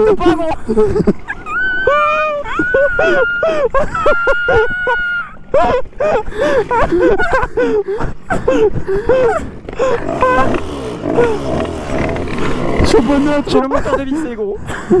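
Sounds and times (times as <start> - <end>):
moped engine revving: 9.0 - 14.4.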